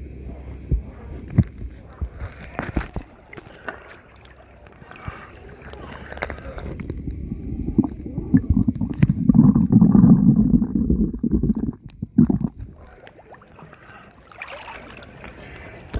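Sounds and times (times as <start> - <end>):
muffled underwater water gurgling: 0.0 - 14.4
bubbly pops: 6.7 - 13.5.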